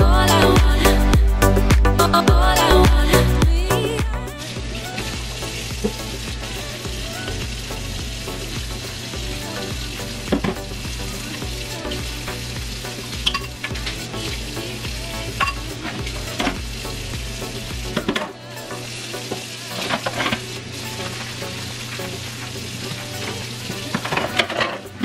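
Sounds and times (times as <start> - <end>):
faucet running into sink: 4.4 - 25.0
dishes clinking against sink: 13.2 - 13.8, 15.4 - 16.6
dishes being scrubbed: 15.2 - 16.6, 22.8 - 25.0.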